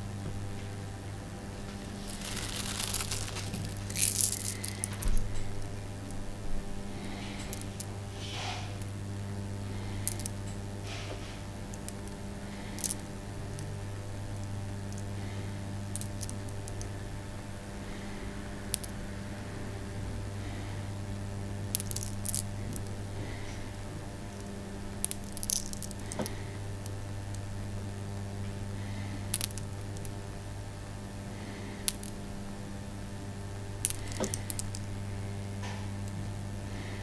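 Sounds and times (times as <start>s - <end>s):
low electrical hum: 0.0s - 37.0s
pearls clicking together: 1.8s - 5.5s, 7.0s - 7.9s, 9.9s - 10.6s, 11.6s - 13.7s, 15.9s - 16.9s, 18.6s - 19.0s, 21.7s - 22.9s, 24.9s - 27.4s, 29.3s - 30.2s, 31.8s - 32.2s, 33.8s - 34.9s.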